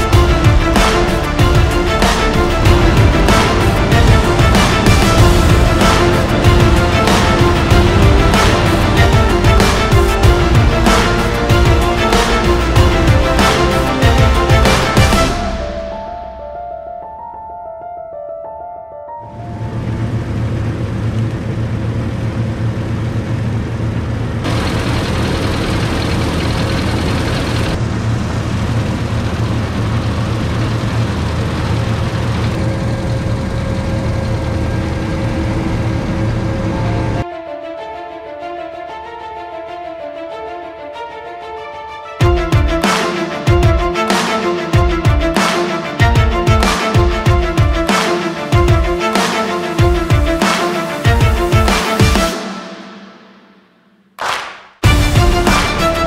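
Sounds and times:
diesel engine running under load: 0.0s - 15.4s, 19.2s - 37.2s
drum hits: 0.0s - 16.1s, 42.2s - 53.6s, 54.2s - 56.0s
loud background music: 0.0s - 17.9s, 36.5s - 56.0s.

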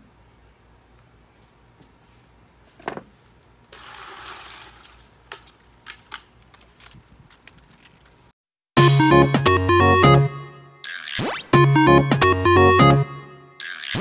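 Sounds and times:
loud electronic music: 8.8s - 14.0s.

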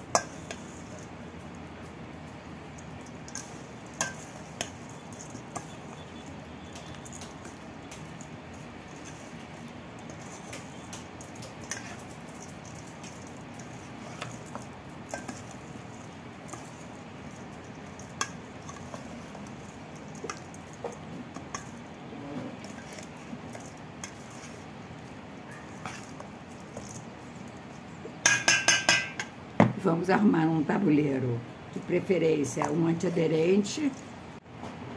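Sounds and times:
spoon clicking and scraping bowl: 0.0s - 1.2s, 2.6s - 29.4s
steady background hiss: 0.0s - 34.9s
wet squishing: 2.7s - 27.9s.

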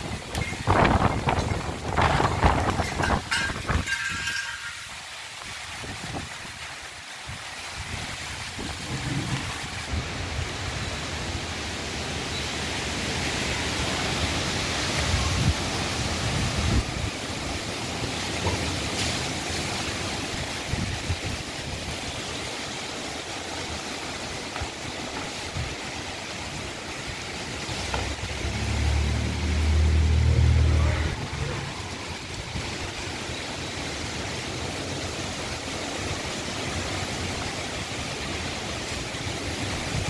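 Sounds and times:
strong wind gusting: 0.0s - 4.3s, 7.8s - 11.0s, 15.0s - 17.6s
wind buffeting microphone: 0.0s - 4.6s, 7.3s - 10.6s, 15.0s - 17.5s.

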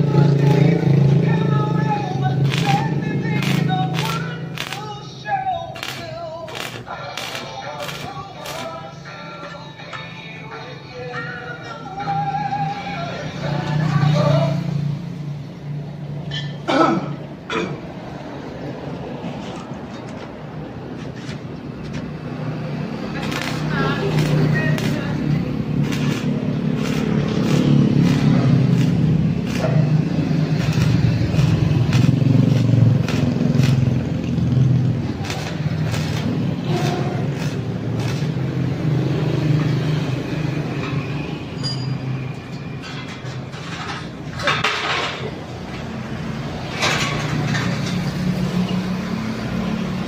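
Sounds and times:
welding arc crackling: 0.0s - 9.1s, 22.7s - 40.3s
metal clatter and scraping: 25.8s - 38.4s, 42.6s - 45.9s, 46.6s - 48.2s.

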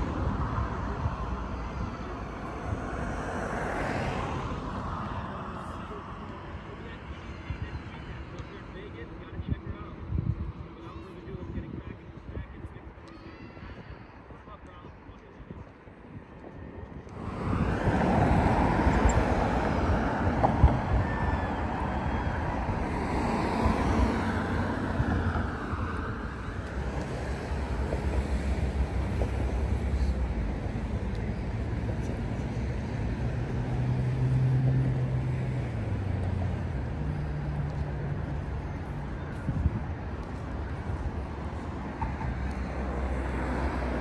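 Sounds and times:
vehicle rushing with low hum: 16.1s - 44.0s.

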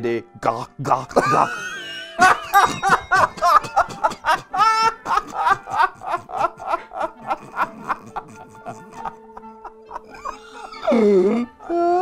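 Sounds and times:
man laughing hard: 1.1s - 12.0s.

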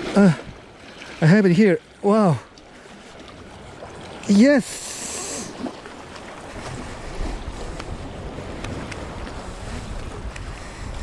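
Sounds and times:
small waves lapping against rocks: 0.0s - 11.0s
wind buffeting microphone: 5.5s - 11.0s.

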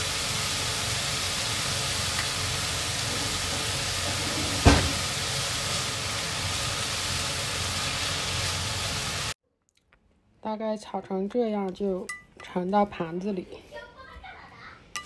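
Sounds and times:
food sizzling in frying pan: 0.0s - 9.4s
spatula stir-frying: 0.0s - 9.4s.

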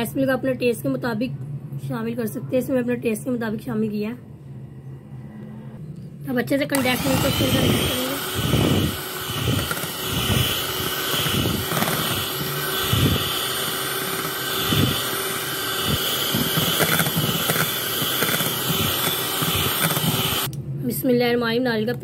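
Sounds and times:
hand mixer motor whine: 6.7s - 20.5s.

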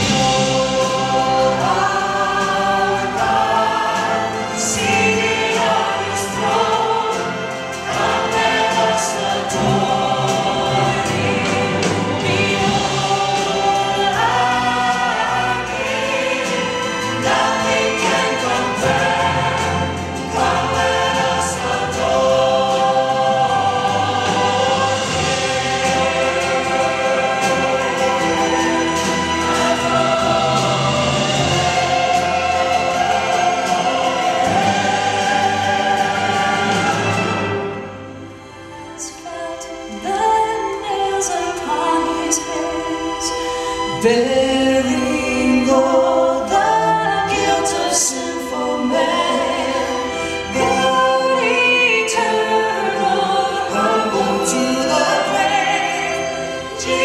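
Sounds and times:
choir singing a hymn: 0.0s - 57.0s
orchestra accompanying: 0.0s - 57.0s.

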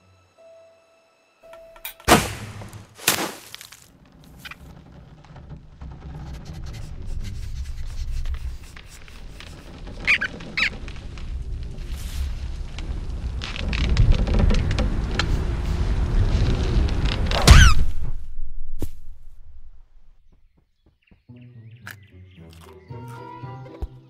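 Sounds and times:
sharp noisy hits: 2.0s - 3.4s
low rumble: 4.0s - 20.4s
short squeaks: 4.1s - 11.5s, 17.3s - 18.2s.

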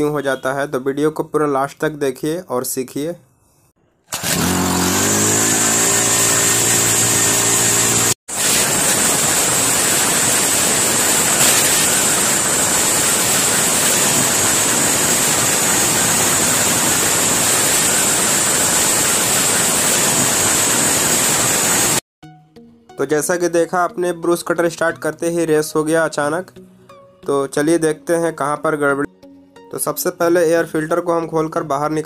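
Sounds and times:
brush cutter engine racing: 4.1s - 20.7s.

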